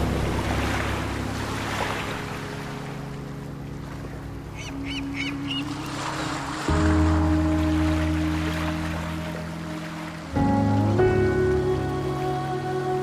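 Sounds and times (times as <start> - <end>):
ocean surf washing: 0.0 - 13.0
bird chirping: 4.6 - 5.7.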